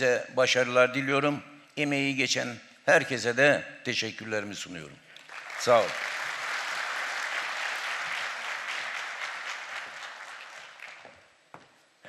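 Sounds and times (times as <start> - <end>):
audience applauding: 5.2 - 11.3.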